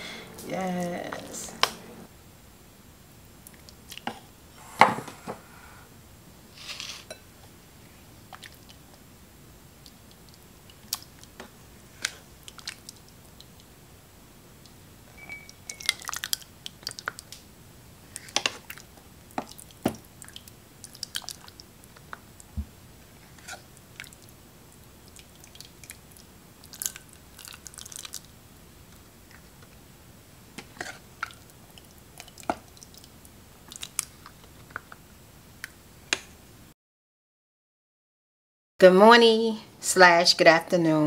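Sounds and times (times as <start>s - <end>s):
beans squishing: 9.8s - 13.7s, 18.1s - 22.5s, 23.2s - 28.3s, 30.6s - 34.8s.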